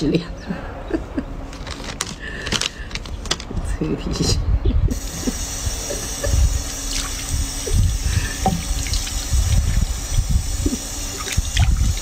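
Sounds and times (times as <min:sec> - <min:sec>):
water splashing and trickling: 0:06.6 - 0:12.0.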